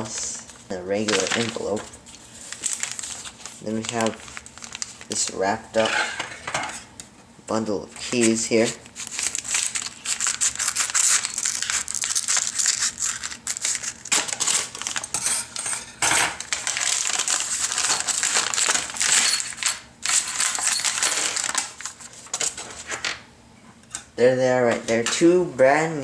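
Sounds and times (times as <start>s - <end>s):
paper crinkling and rustling: 0.1s - 6.3s, 8.0s - 15.2s, 16.4s - 23.1s.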